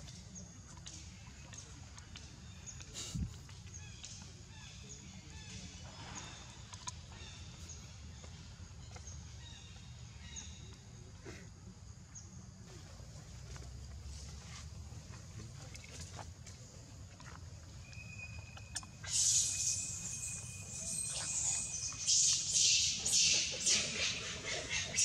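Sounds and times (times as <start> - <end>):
small birds chirping: 16.7 - 25.0.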